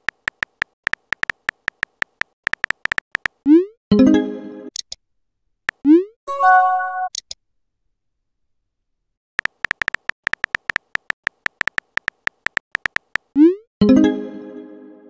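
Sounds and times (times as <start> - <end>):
phone keyboard typing clicks: 0.0 - 3.4, 9.4 - 13.4.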